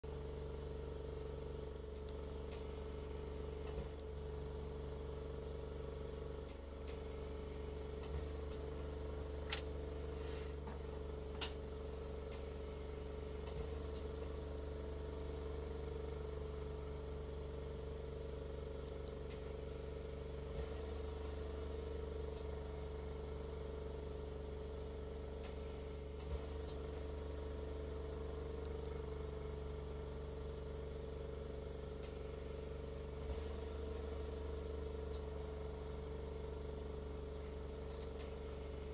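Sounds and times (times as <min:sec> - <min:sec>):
gas torch hissing: 0:09.9 - 0:11.0.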